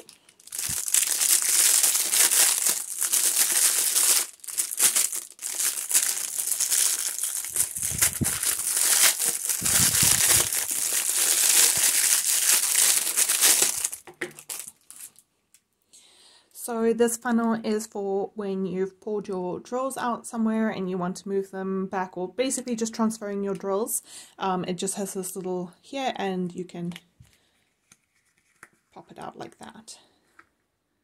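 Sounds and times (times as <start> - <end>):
plastic packet crinkling: 0.0 - 15.2.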